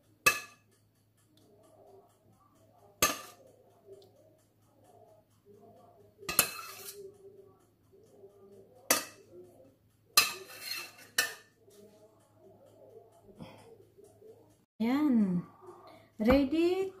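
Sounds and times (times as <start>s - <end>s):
metal spoon clinking on pot: 0.2s - 0.7s, 3.0s - 3.5s, 6.2s - 7.1s, 8.9s - 9.5s, 10.1s - 11.5s
spoon scraping pot: 3.0s - 3.4s, 6.3s - 7.2s, 10.2s - 11.8s.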